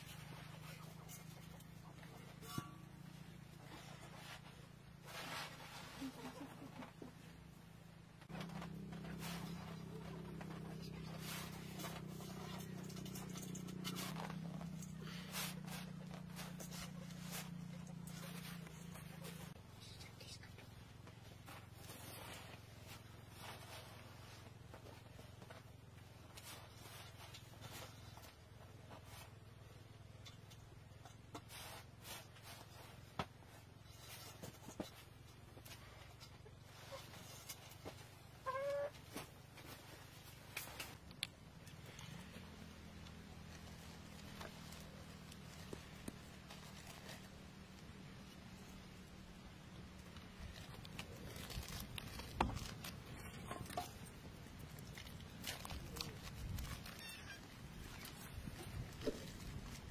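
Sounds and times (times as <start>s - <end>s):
steady low hum: 0.0s - 38.3s.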